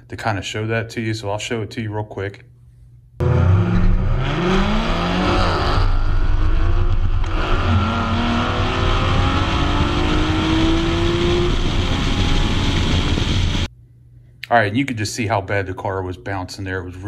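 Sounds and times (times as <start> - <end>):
car engine accelerating hard: 3.2 - 13.7
supercharger whine: 3.2 - 13.7.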